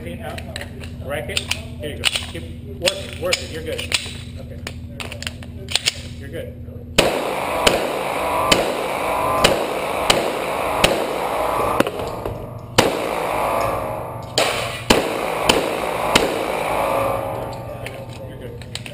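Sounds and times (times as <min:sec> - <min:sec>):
pistol shots ringing indoors: 0:07.0 - 0:18.9.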